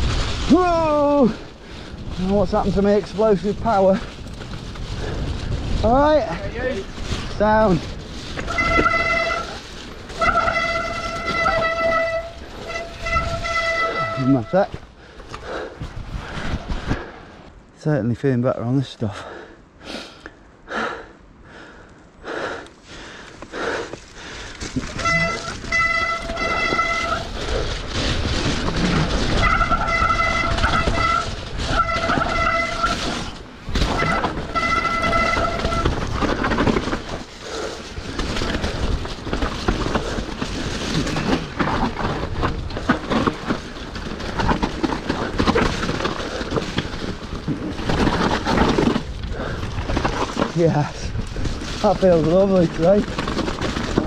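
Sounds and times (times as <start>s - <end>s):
tyres rattling on muddy trail: 0.0s - 19.6s, 20.7s - 54.0s
bike disc brakes squealing: 8.2s - 14.6s, 24.8s - 37.6s.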